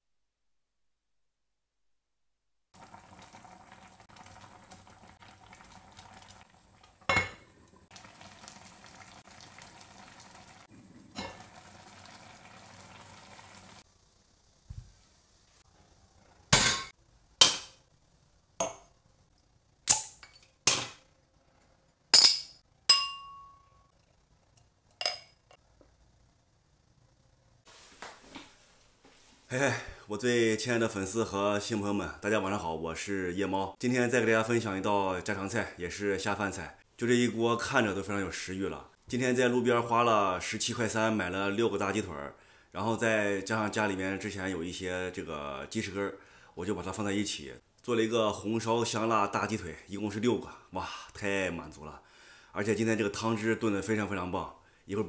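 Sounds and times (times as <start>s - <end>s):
braising liquid bubbling in a pot: 2.7s - 14.3s
dishes and glassware clinking: 7.1s - 7.5s, 11.2s - 11.4s, 16.6s - 17.8s, 22.2s - 23.8s, 25.0s - 25.6s.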